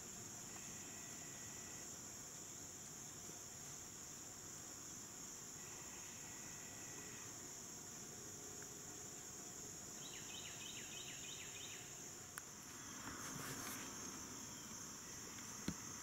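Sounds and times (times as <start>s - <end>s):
insects droning: 0.0s - 16.0s
brief rustle: 12.7s - 14.0s.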